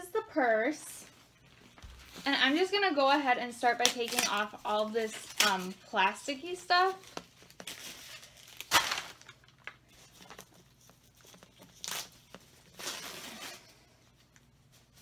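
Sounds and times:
plastic wrapping crinkling: 0:03.6 - 0:15.0.

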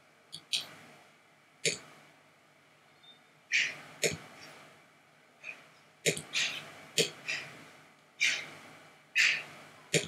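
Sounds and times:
computer mouse clicking: 0:00.3 - 0:00.8.

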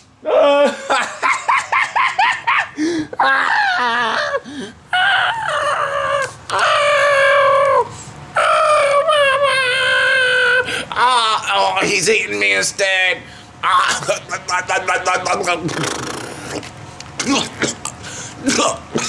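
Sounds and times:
man screaming and wailing: 0:00.2 - 0:11.8.

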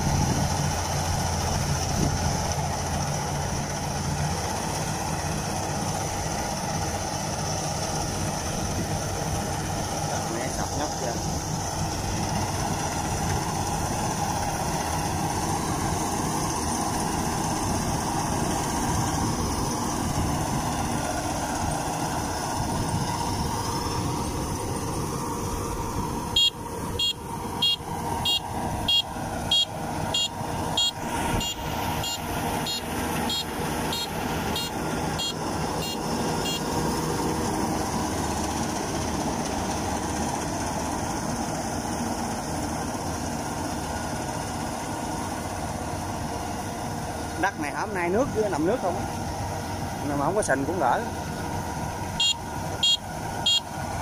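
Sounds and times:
combine harvester running: 0:00.0 - 0:54.0
short high beeps: 0:26.4 - 0:36.6, 0:52.2 - 0:53.7.

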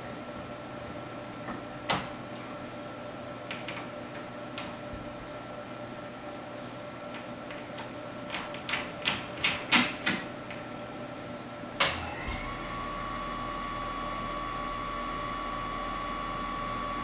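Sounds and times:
balancing machine whine and hum: 0:10.4 - 0:17.0.

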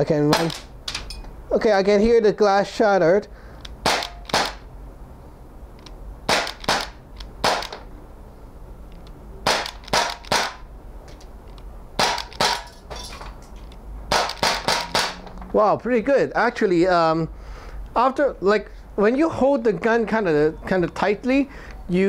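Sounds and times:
air pistol shots popping: 0:00.3 - 0:00.8, 0:03.7 - 0:04.7, 0:06.3 - 0:07.9, 0:09.4 - 0:10.7, 0:12.0 - 0:12.7, 0:14.1 - 0:15.2.

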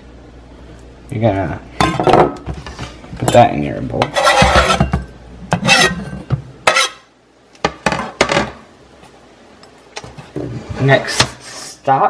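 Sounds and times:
knife scraping cutting board: 0:04.0 - 0:04.9, 0:05.5 - 0:07.1.

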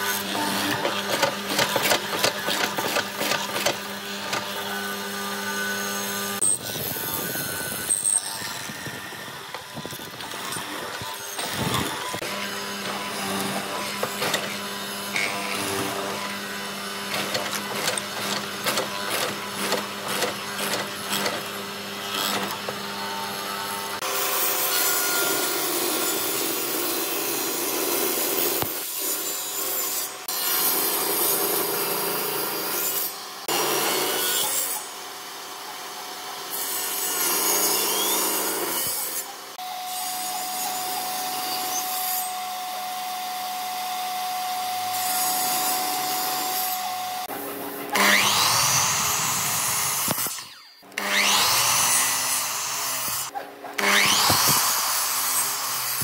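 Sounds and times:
mortiser humming: 0:00.0 - 0:24.0
table saw ripping wood: 0:00.0 - 0:34.9, 0:36.5 - 0:39.3, 0:44.7 - 0:56.0
saw blade whining: 0:00.0 - 0:56.0.

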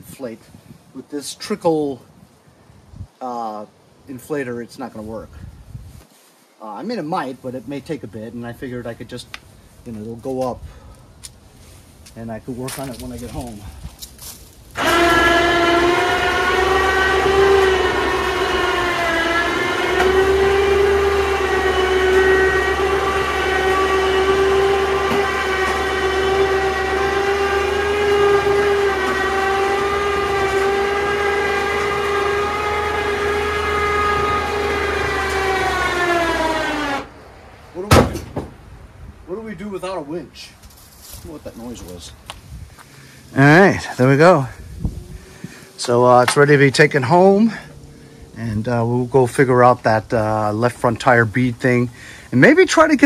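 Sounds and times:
electric winch whining: 0:14.7 - 0:37.8.

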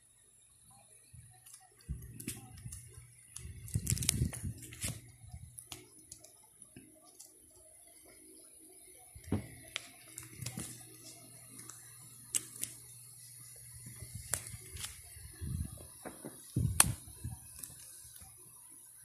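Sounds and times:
clicks and crinkles of plastic: 0:01.3 - 0:07.4, 0:09.2 - 0:12.8, 0:15.8 - 0:18.3.

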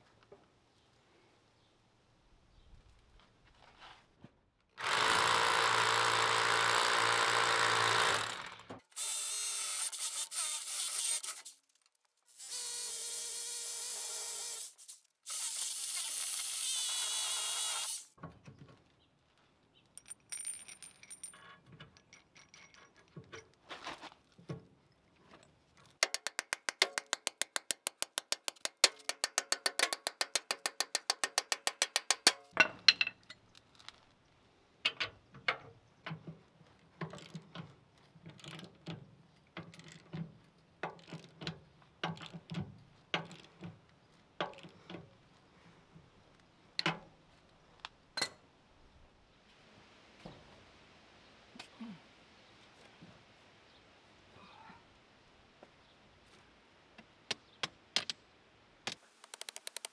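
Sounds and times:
power drill drilling into concrete: 0:04.8 - 0:11.4, 0:12.4 - 0:18.1
small metal clinks: 0:19.8 - 0:23.6
ratchet wrench clicking: 0:26.0 - 0:32.4.

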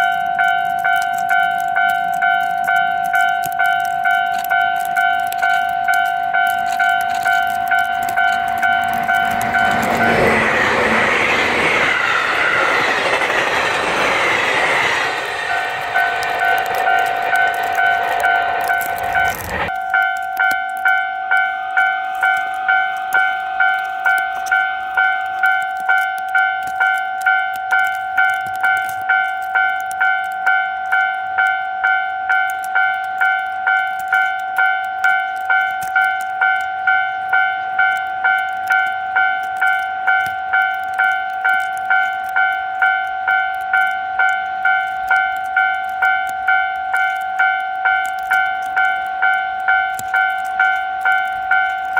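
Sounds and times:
level-crossing alarm two-tone ding: 0:00.0 - 0:10.6, 0:15.5 - 0:51.9
train rumble and wheel clatter: 0:00.0 - 0:51.9.

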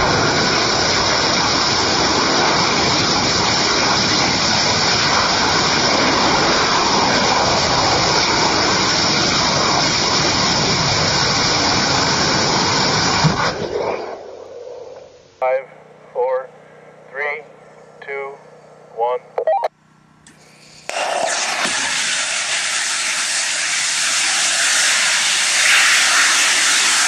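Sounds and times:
rocket engine firing: 0:00.0 - 0:15.2, 0:20.8 - 0:27.0.

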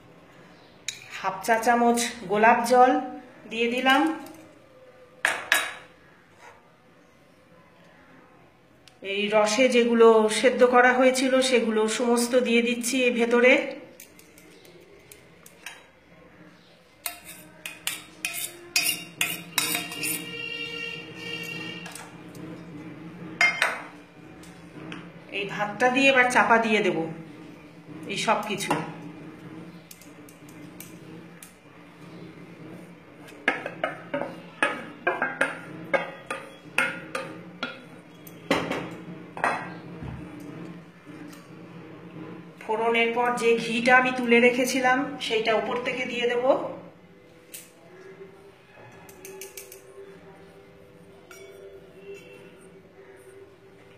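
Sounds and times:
metal spoon clinking on cooking pan: 0:17.0 - 0:20.4, 0:51.3 - 0:52.3
utensils knocking against pan and bowl: 0:17.0 - 0:22.2, 0:23.4 - 0:24.0, 0:33.3 - 0:39.8.

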